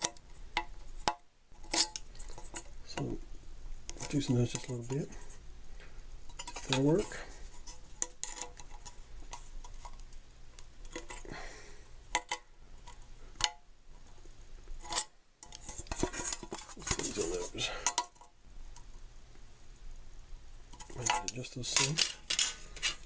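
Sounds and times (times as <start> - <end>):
metal scraping and clattering: 20.8 - 23.0.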